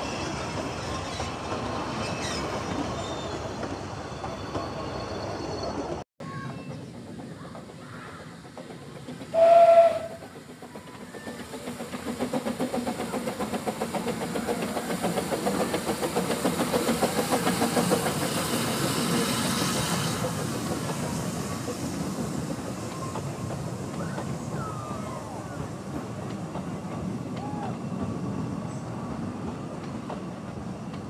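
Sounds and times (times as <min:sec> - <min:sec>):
train coaches rolling past: 0:00.0 - 0:31.0
rhythmic steam exhaust beats: 0:06.3 - 0:31.0
hissing steam: 0:06.8 - 0:31.0
steam locomotive whistle: 0:09.3 - 0:10.2.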